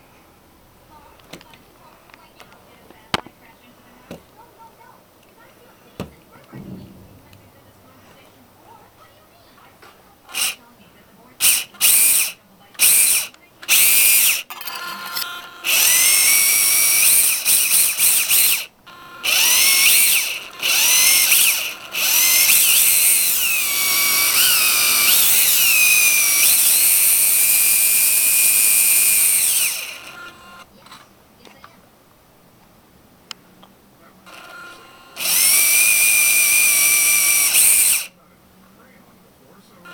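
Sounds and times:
toy car electric motor whining: 0:10.3 - 0:10.6, 0:11.4 - 0:31.0, 0:34.3 - 0:38.2.

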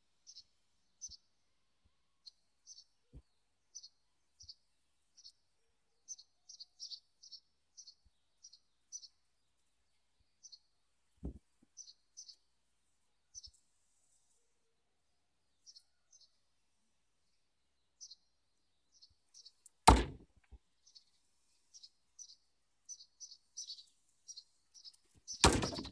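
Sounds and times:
small bird chirping: 0:02.2 - 0:09.5, 0:11.3 - 0:12.5, 0:15.5 - 0:16.4, 0:17.3 - 0:19.8, 0:20.8 - 0:25.9
dull low thump: 0:19.9 - 0:20.2.

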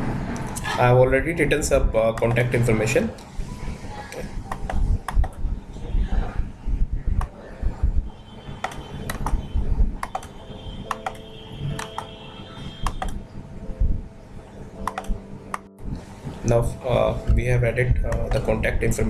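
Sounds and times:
keyboard keystrokes: 0:04.5 - 0:05.4, 0:08.6 - 0:09.4, 0:10.0 - 0:12.1, 0:12.8 - 0:13.2, 0:14.8 - 0:15.7
dull low thuds: 0:06.4 - 0:08.1
mouse clicks: 0:08.6 - 0:09.4, 0:10.0 - 0:10.3, 0:10.9 - 0:11.2, 0:12.8 - 0:13.2, 0:14.8 - 0:15.7.

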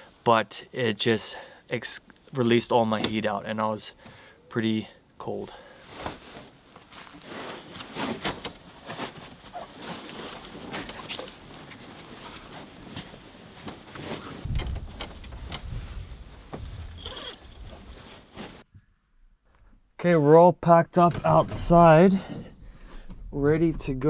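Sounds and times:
sleeping bag fabric rustling: 0:05.8 - 0:18.7
low rumble: 0:22.4 - 0:24.0.

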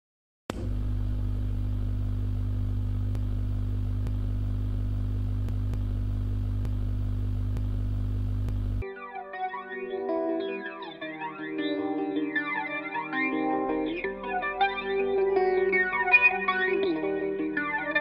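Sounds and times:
guitar amplifier electrical hum: 0:00.5 - 0:08.8, 0:09.6 - 0:18.0
faint ticks: 0:06.5 - 0:06.8, 0:08.4 - 0:08.8.

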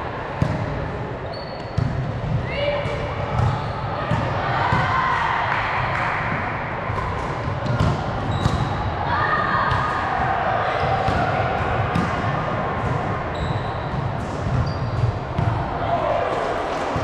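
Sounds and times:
players' voices: 0:00.0 - 0:17.0
sneaker squeaks: 0:01.2 - 0:04.1, 0:08.2 - 0:08.8, 0:13.3 - 0:15.4
volleyballs thudding: 0:06.0 - 0:08.8, 0:09.7 - 0:13.3, 0:13.9 - 0:15.7.

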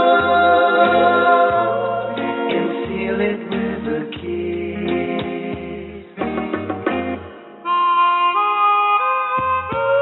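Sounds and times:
pop ballad on radio: 0:00.0 - 0:07.3.

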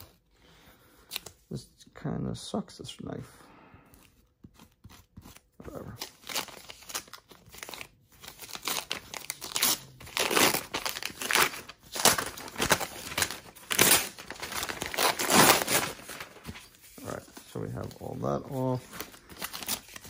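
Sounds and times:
paper tearing and crumpling: 0:04.6 - 0:20.0.

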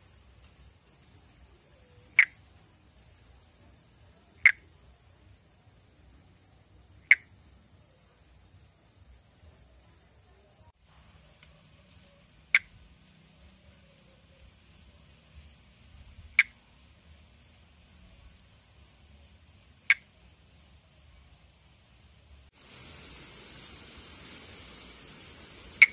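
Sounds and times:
insects trilling: 0:00.0 - 0:25.9
tree frog click calls: 0:01.5 - 0:02.7, 0:04.1 - 0:05.0, 0:06.8 - 0:08.0, 0:11.4 - 0:14.9, 0:15.6 - 0:17.5, 0:19.5 - 0:20.4.

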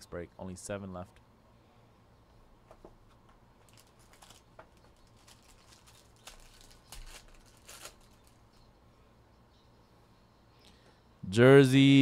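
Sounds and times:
sharp crackles: 0:03.6 - 0:08.4
foil wrapper crinkling: 0:03.6 - 0:08.5.

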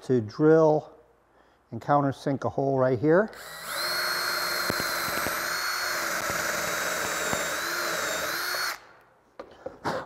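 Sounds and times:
power drill boring into wood: 0:03.4 - 0:08.8.

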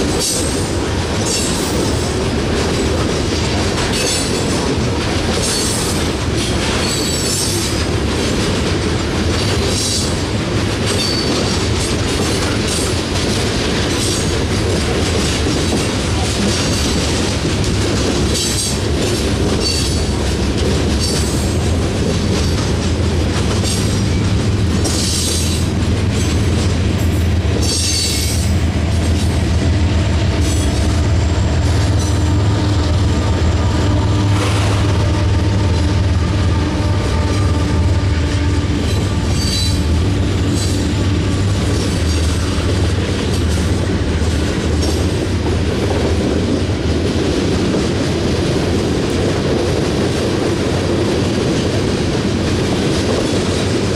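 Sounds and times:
train wheels rumbling and clicking: 0:00.0 - 0:53.9
locomotive engine drone: 0:11.6 - 0:49.7.

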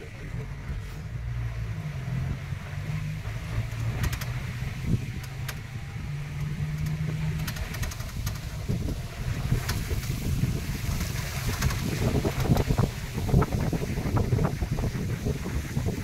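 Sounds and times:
vehicle engine running: 0:00.0 - 0:16.0
clicks and rattles from bumps: 0:03.7 - 0:04.4, 0:06.3 - 0:12.9.

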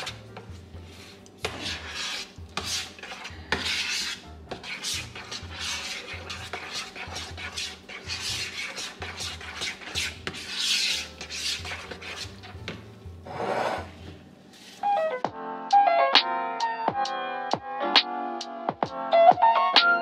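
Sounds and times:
metal spoon scraping a bowl: 0:00.0 - 0:12.7, 0:13.3 - 0:14.1.

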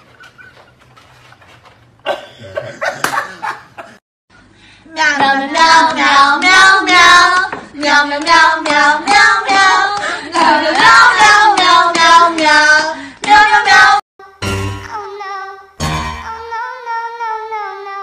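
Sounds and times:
high voice singing unaccompanied: 0:04.9 - 0:18.0.

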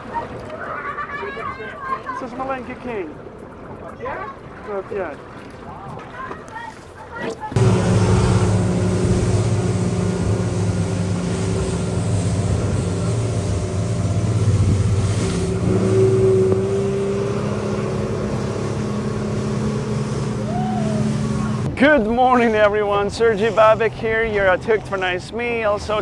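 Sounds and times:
water rushing off hull: 0:03.2 - 0:26.0
outboard motor running: 0:07.5 - 0:26.0.

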